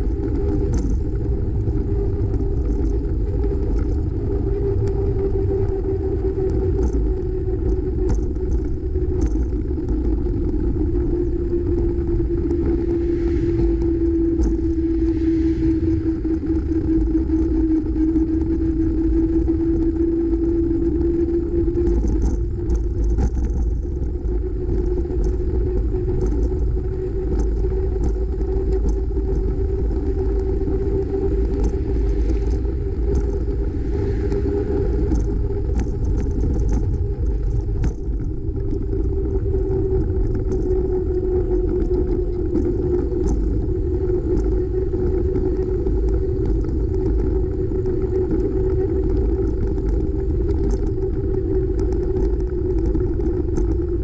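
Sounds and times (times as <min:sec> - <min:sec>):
steady hum of bicycle ride: 0:00.0 - 0:54.0
wind noise on microphone: 0:00.0 - 0:54.0.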